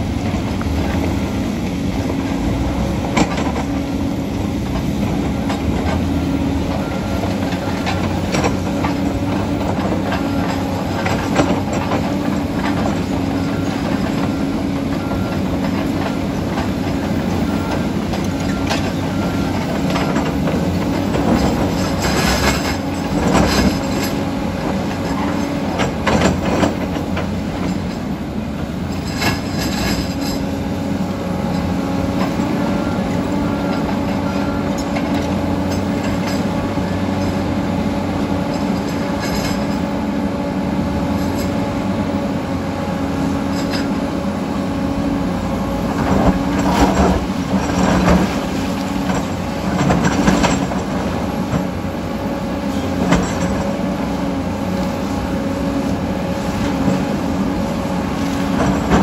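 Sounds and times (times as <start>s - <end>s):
diesel engine drone: 0.0s - 59.0s
metal clanks and scrapes on rock: 19.6s - 28.1s, 28.9s - 30.6s, 38.4s - 40.0s, 43.5s - 44.0s, 46.0s - 51.8s, 52.7s - 54.0s, 58.5s - 59.0s.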